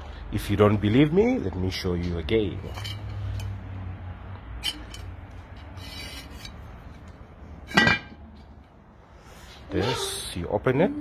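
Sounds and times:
wire hook scraping pot lid: 0:04.6 - 0:07.0.

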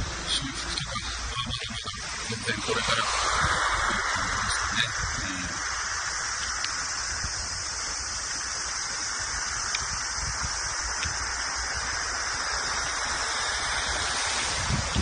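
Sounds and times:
hissing outdoor background noise: 0:00.0 - 0:15.0
uneven low rumble: 0:00.0 - 0:15.0.

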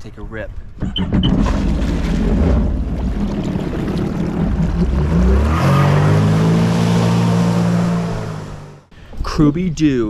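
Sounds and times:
jet ski engine revving: 0:02.2 - 0:08.9.

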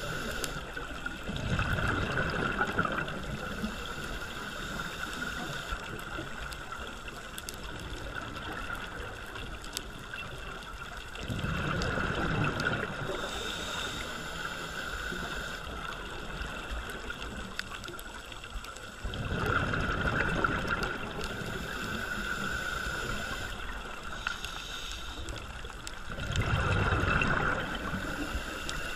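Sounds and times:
steady underwater hiss: 0:00.0 - 0:28.9
exhaled bubbles rushing: 0:01.2 - 0:03.5, 0:11.2 - 0:13.1, 0:19.0 - 0:21.5, 0:26.0 - 0:28.1.

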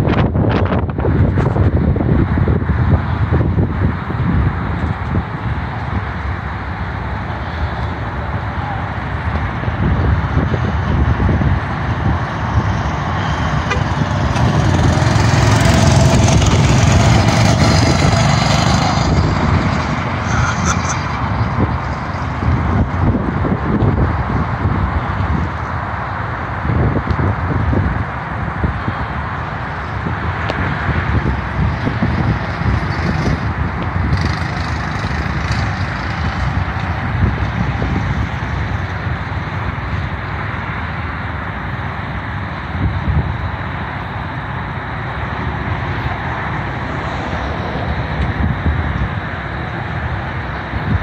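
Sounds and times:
wind on microphone: 0:00.0 - 0:06.2, 0:08.3 - 0:40.2, 0:44.7 - 0:51.0
go-kart engines driving by: 0:00.0 - 0:51.0
go-kart engine running: 0:13.2 - 0:23.0, 0:31.5 - 0:38.2.

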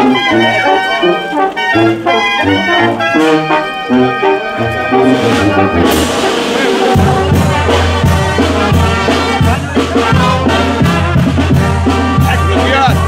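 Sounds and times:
brass band playing: 0:00.0 - 0:13.0
drum beats: 0:00.0 - 0:13.0
pulsing bass line: 0:03.9 - 0:13.0.

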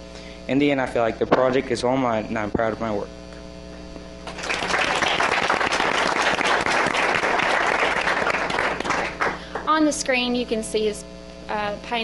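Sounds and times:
low electrical hum: 0:00.0 - 0:12.0
audience applauding: 0:04.2 - 0:09.7.

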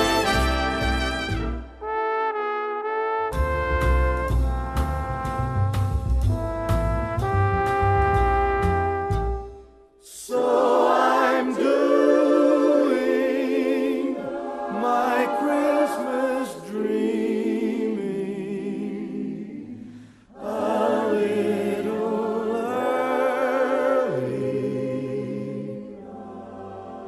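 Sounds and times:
choir singing a cappella: 0:00.0 - 0:01.4, 0:10.0 - 0:27.0.

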